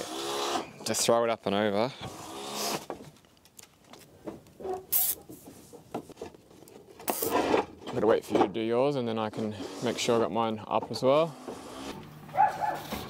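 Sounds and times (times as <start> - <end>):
cable ties zipping tight: 4.8 - 5.2, 7.0 - 7.6
cable rubbing over timber: 9.3 - 10.4.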